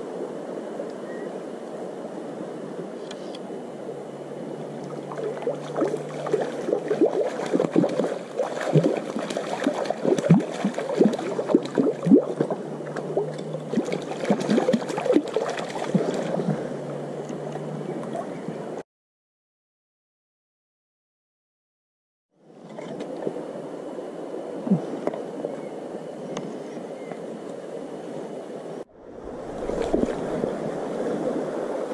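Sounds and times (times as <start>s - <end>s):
stream water running: 0.0s - 18.8s, 22.4s - 31.9s
fish splashing at surface: 5.0s - 16.7s.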